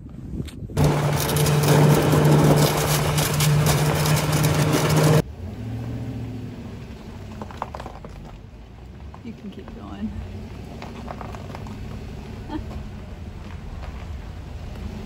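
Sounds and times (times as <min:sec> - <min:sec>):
snowmobile engine running: 0:00.8 - 0:05.2
snowmobile track noise: 0:00.8 - 0:15.0.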